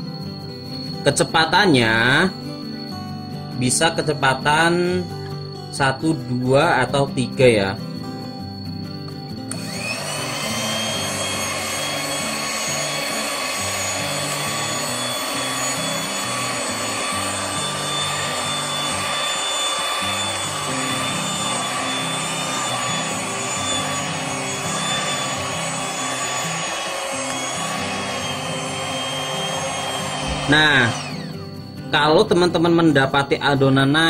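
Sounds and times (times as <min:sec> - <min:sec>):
electric hand mixer whining: 0:08.8 - 0:31.9.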